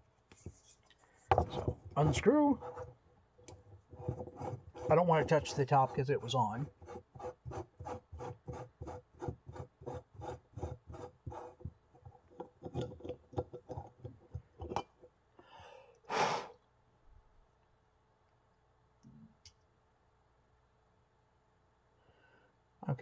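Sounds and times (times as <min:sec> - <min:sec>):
rasping thread scrapes: 0:01.3 - 0:14.7
short loud gas hiss: 0:16.1 - 0:16.6.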